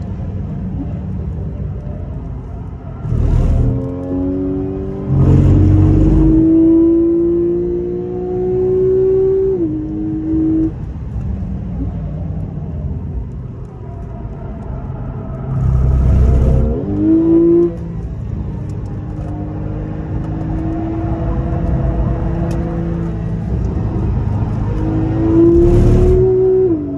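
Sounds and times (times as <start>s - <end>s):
loud low engine rumble: 0.0s - 6.8s, 10.4s - 19.5s, 21.2s - 26.4s
car engine under acceleration: 0.0s - 26.9s.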